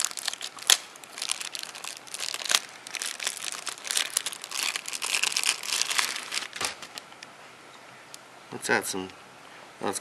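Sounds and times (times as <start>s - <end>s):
plastic wrapping crinkling: 0.0s - 7.1s.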